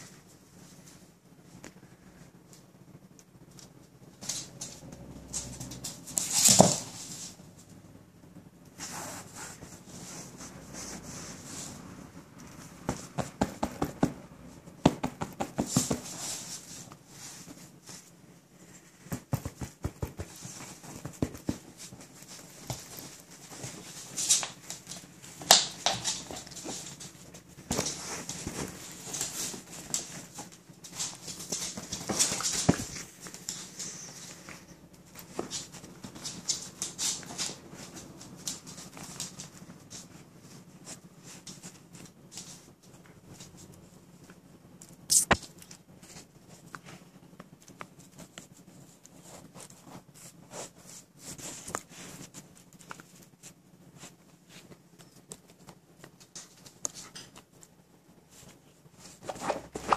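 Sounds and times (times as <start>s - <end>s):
dog rustling against phone: 15.4s - 42.7s.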